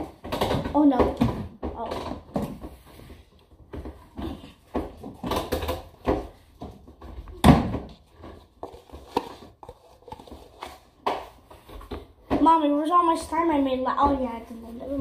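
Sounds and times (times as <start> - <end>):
kitchen knocks and bumps: 0.0 - 2.9, 3.7 - 10.4.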